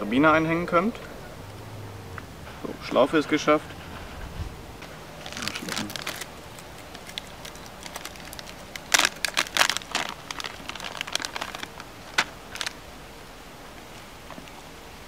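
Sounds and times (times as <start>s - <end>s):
plastic packets crinkling: 5.1s - 12.9s.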